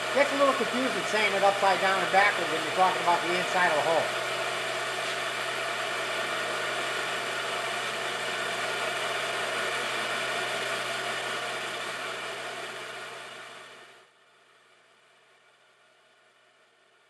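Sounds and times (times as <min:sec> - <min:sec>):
metal lathe whirring: 0:00.0 - 0:13.4.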